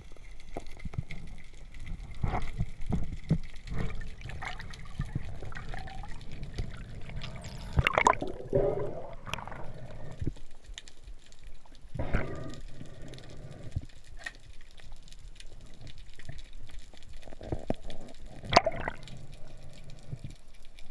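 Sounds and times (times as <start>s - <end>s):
low underwater noise: 0.0s - 20.9s
bubbling gushes: 0.8s - 10.4s, 15.6s - 20.3s.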